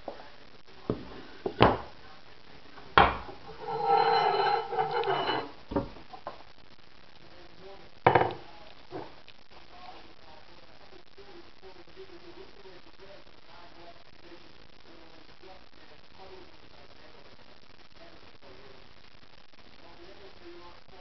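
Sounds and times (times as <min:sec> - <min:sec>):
wood and metal knocking on countertop: 0:03.0 - 0:06.0, 0:08.1 - 0:08.4
metal tube rattling scrape: 0:03.4 - 0:05.6.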